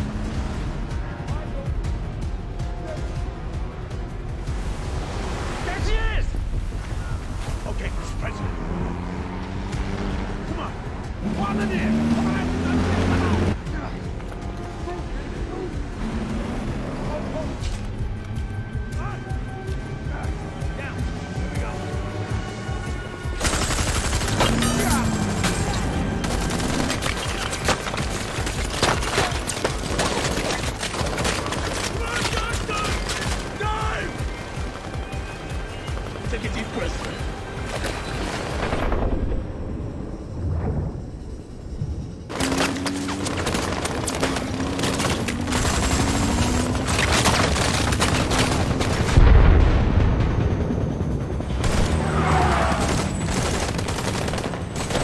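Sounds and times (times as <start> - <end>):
rapid gunfire: 23.3 - 33.6, 42.3 - 49.2, 50.2 - 55.0
heavy low boom: 49.1 - 51.7
automatic gunfire bursts: 52.8 - 55.0.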